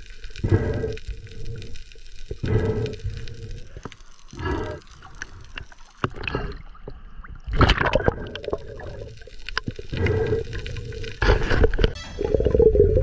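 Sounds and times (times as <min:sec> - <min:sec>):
water gurgling underwater: 0:04.4 - 0:13.0.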